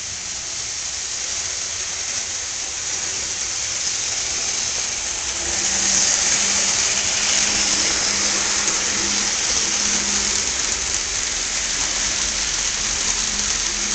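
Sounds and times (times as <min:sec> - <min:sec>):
model train wheels rolling: 0:00.0 - 0:13.9
low motor hum: 0:04.0 - 0:13.9.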